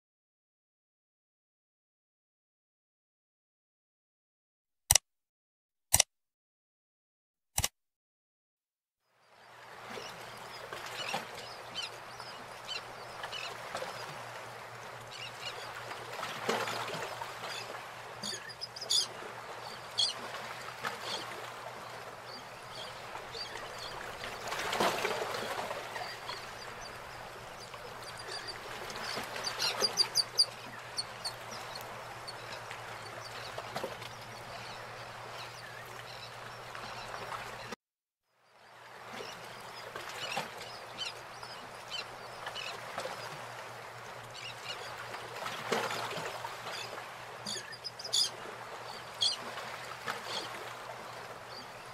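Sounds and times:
birds calling: 0:16.6 - 0:37.7, 0:46.2 - 0:51.7.

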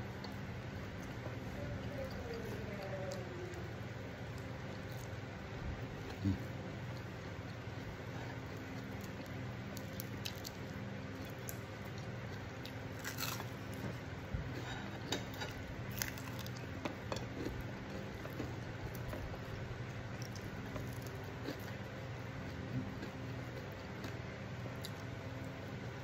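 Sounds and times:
person chewing food: 0:00.1 - 0:25.4
food crunching: 0:01.9 - 0:25.4.

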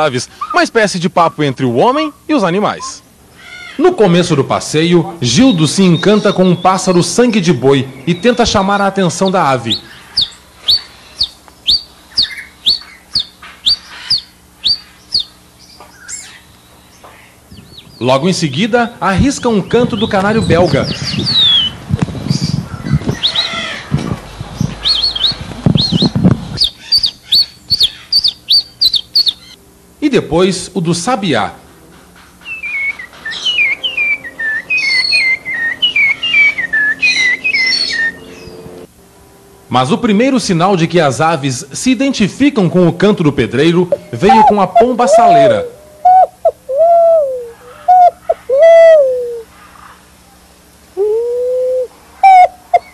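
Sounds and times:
man whistling bird song: 0:32.5 - 0:38.3, 0:43.9 - 0:49.4.

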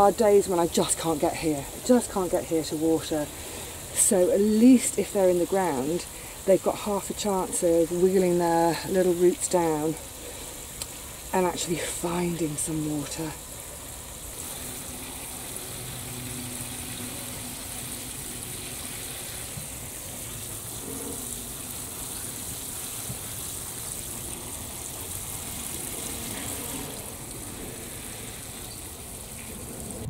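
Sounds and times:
water spattering from watering can: 0:09.1 - 0:30.0.

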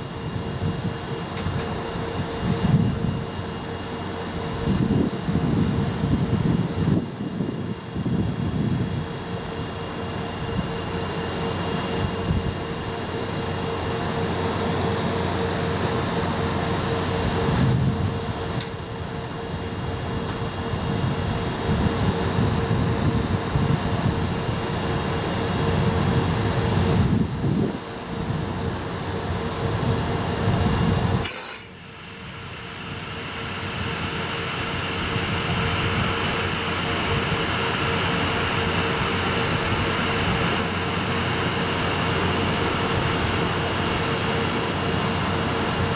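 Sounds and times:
electric locomotive humming: 0:00.0 - 0:45.9
mid-pitched whine: 0:00.0 - 0:45.9
sharp hiss of air: 0:31.2 - 0:45.9.

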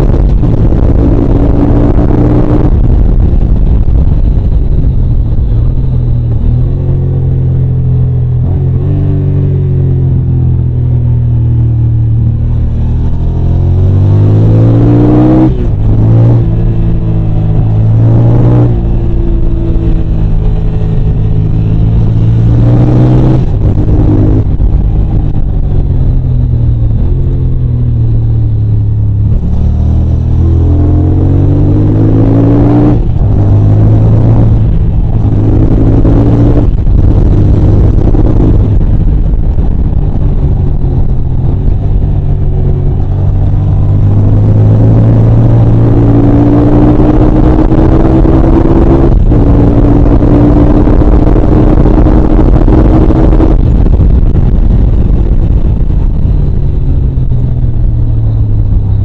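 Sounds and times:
motorcycle engine revving through gears: 0:00.0 - 0:59.0.

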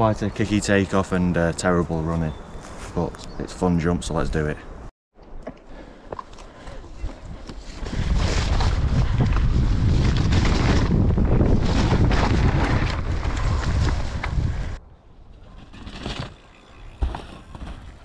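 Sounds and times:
wind buffeting microphone: 0:06.9 - 0:14.9
bike rattling over rough ground: 0:07.8 - 0:14.7, 0:15.3 - 0:18.0.

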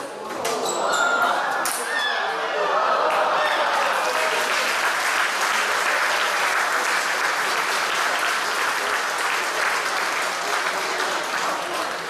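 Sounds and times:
spectators applauding: 0:03.0 - 0:12.0.

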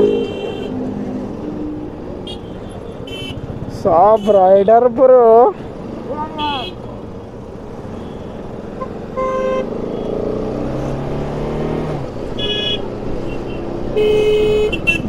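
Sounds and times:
vehicle horns tooting: 0:00.0 - 0:00.8, 0:02.2 - 0:04.8, 0:06.3 - 0:06.8, 0:08.0 - 0:10.2, 0:12.4 - 0:15.0.

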